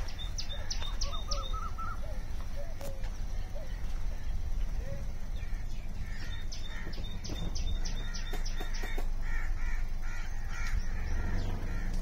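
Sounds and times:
sharp high bird chirps: 0.0s - 3.0s, 4.8s - 9.2s
birds harsh calls: 0.0s - 12.0s
steady low rumble: 0.0s - 12.0s.

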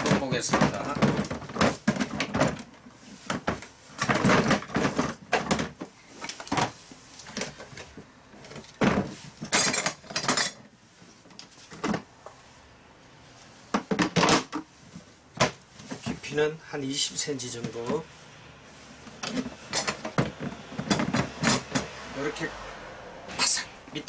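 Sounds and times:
plastic toolbox clattering: 0.0s - 10.7s, 11.3s - 12.1s, 13.7s - 16.4s, 19.0s - 21.9s.

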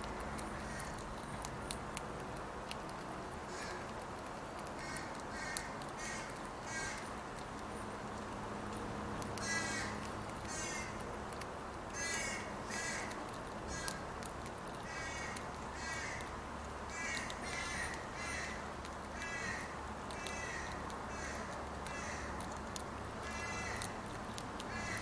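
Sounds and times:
crows cawing: 3.5s - 3.8s, 4.8s - 7.0s, 9.4s - 11.0s, 12.0s - 13.1s, 13.7s - 14.0s, 14.9s - 16.3s, 16.9s - 22.4s, 23.2s - 24.0s, 24.6s - 25.0s.

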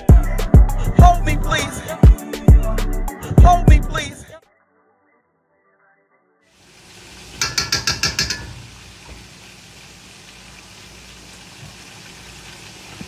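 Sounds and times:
kitchen room hiss: 6.5s - 13.0s
rattle of sharp clicks: 7.4s - 8.5s.

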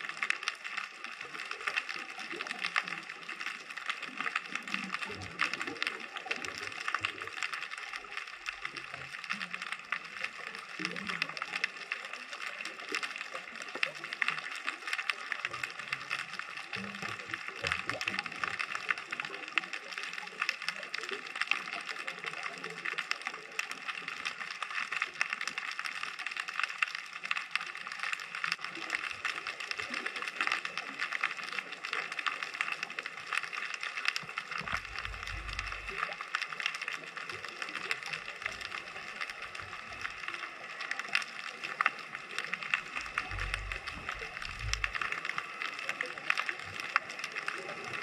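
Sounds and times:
underwater clicking crackle: 0.0s - 48.0s
low rumble: 34.7s - 36.0s, 43.0s - 45.2s.

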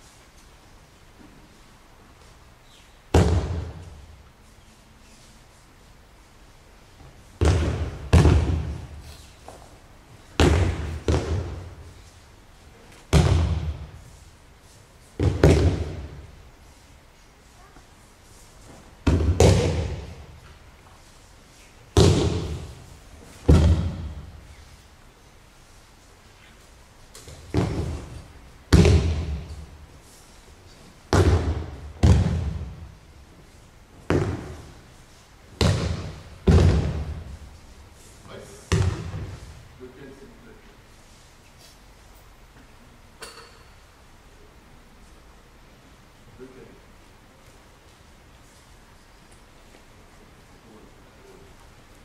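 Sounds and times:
bodies thudding on mats: 27.3s - 29.6s.

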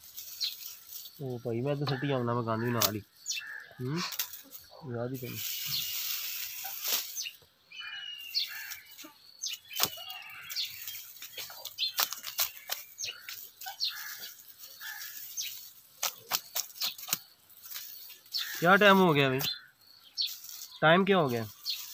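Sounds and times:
dry stalks rustling and crackling: 0.0s - 21.9s
small birds chirping: 0.0s - 21.9s
sharp stalk snaps: 9.7s - 10.0s, 11.9s - 12.9s, 16.0s - 17.3s.

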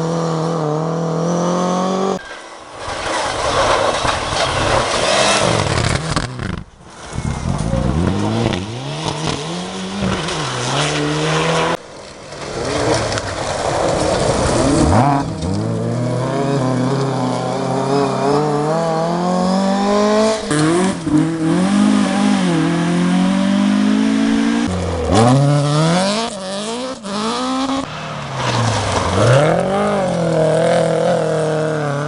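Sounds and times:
rally car engines revving: 0.0s - 32.0s
car engine accelerating: 4.4s - 11.8s.

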